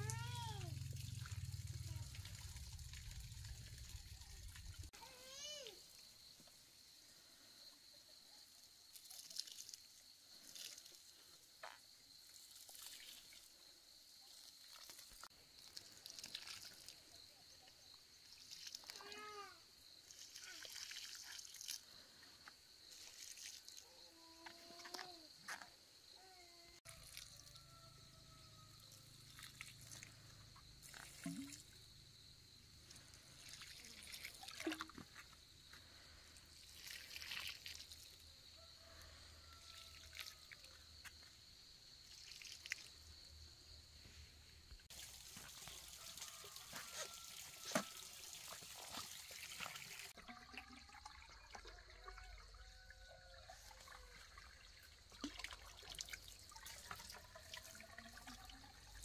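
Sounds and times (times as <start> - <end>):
water trickling onto soil: 0.0 - 5.0, 8.9 - 11.1, 12.2 - 13.6, 14.2 - 17.2, 18.2 - 22.1, 22.8 - 23.9, 26.9 - 27.6, 29.0 - 30.2, 30.8 - 31.8, 32.8 - 38.3, 39.5 - 40.7, 42.0 - 43.1, 44.9 - 59.0.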